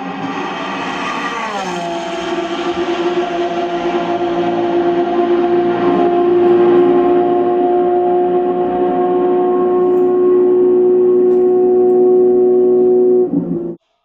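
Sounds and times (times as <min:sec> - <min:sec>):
race car engine drone: 0:00.0 - 0:13.8.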